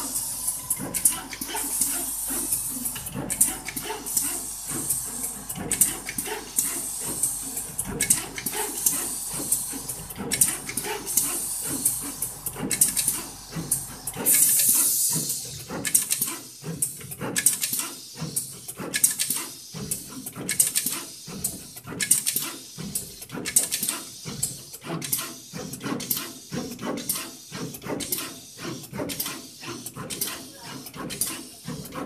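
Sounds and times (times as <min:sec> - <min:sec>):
pneumatic hisses: 0:00.0 - 0:22.8.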